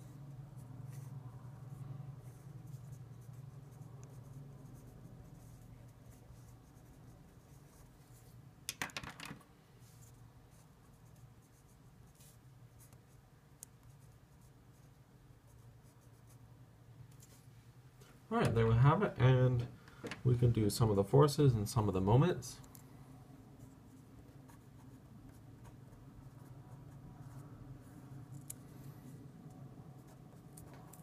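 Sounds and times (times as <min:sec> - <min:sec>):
steady low hum: 0:00.0 - 0:08.7, 0:09.5 - 0:31.0
marker scratching on paper: 0:00.1 - 0:08.3, 0:09.8 - 0:16.4, 0:23.6 - 0:28.6, 0:29.9 - 0:31.0.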